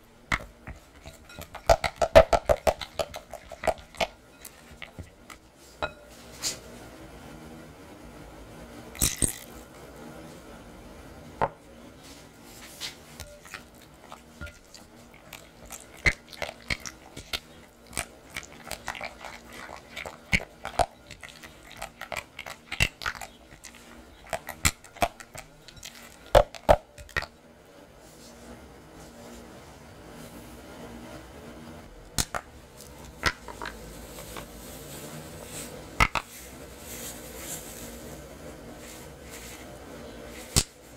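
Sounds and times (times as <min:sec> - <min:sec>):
batter squelching: 0:00.1 - 0:06.6, 0:12.2 - 0:27.4.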